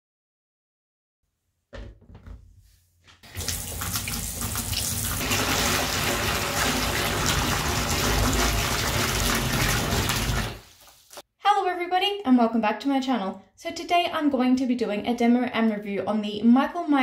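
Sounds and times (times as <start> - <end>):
tap water splashing into bathtub: 3.2 - 11.2.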